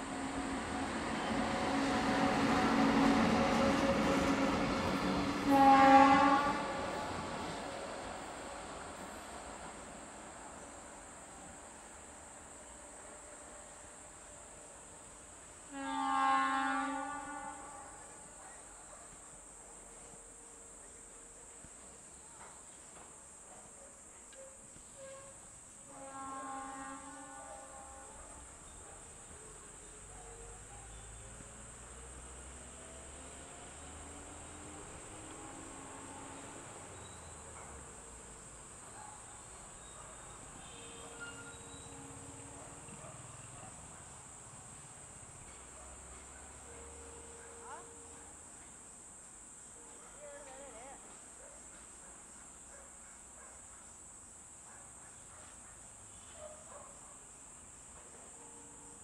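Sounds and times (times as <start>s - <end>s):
crickets chirping: 0.0s - 59.0s
insects trilling: 0.0s - 59.0s
faint whistled tones: 24.3s - 25.4s, 36.8s - 37.8s, 39.1s - 43.8s.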